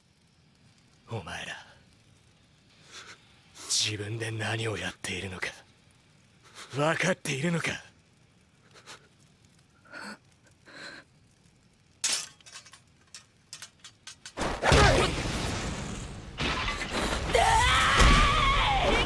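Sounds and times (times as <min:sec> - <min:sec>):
person shouting: 0:17.3 - 0:19.0.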